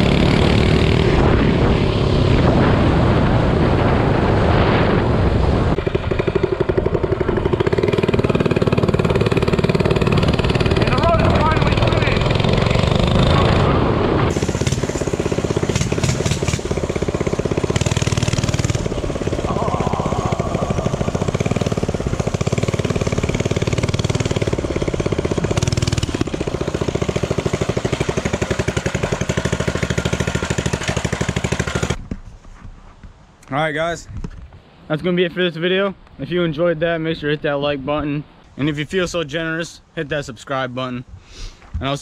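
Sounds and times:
small engine running: 5.8 - 32.0.

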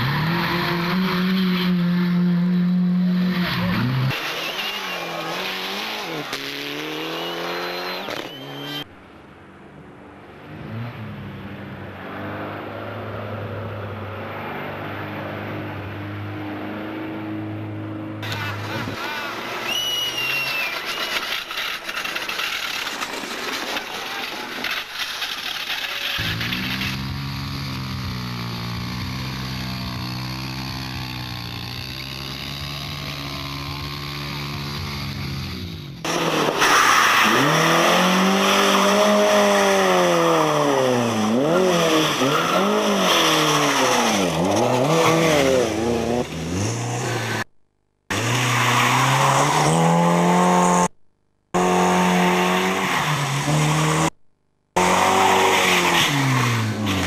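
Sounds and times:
motorbike engine at high revs: 0.0 - 8.8, 26.1 - 36.6, 37.2 - 47.5, 48.1 - 54.2, 54.8 - 57.0
racing engines revving: 0.0 - 8.9, 26.0 - 47.5, 51.6 - 54.2, 54.8 - 57.0.

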